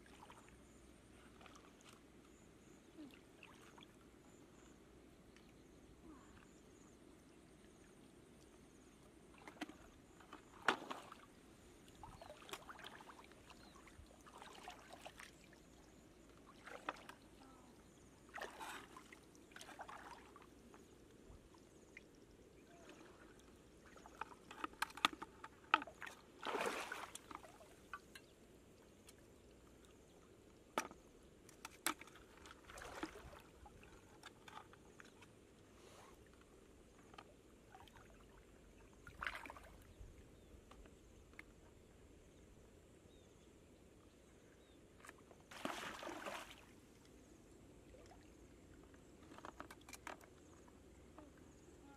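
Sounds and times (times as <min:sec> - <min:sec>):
shallow water splashing: 0:09.3 - 0:20.9, 0:21.6 - 0:28.2, 0:31.8 - 0:35.2, 0:37.7 - 0:40.0, 0:45.5 - 0:47.0.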